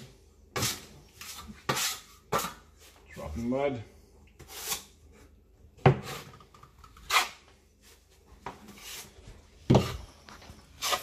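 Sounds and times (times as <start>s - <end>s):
trowel scraping a mud pan: 0.0s - 2.7s, 4.4s - 5.0s, 7.0s - 7.5s, 8.7s - 10.1s, 10.7s - 11.0s.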